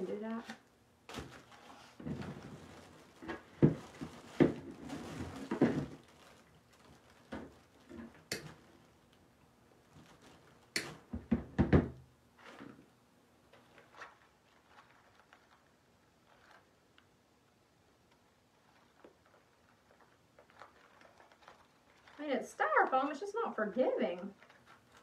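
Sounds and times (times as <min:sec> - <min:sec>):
artificial greenery rustling: 0:01.1 - 0:11.1, 0:12.3 - 0:17.3, 0:18.2 - 0:25.0
knocks and thumps: 0:02.0 - 0:02.6, 0:03.2 - 0:06.0, 0:11.1 - 0:12.0.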